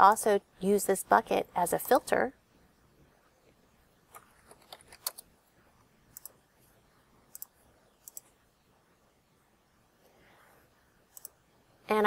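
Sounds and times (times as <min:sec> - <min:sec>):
computer mouse clicks: 0:04.1 - 0:05.3, 0:06.1 - 0:06.4, 0:07.3 - 0:08.3, 0:11.1 - 0:11.4.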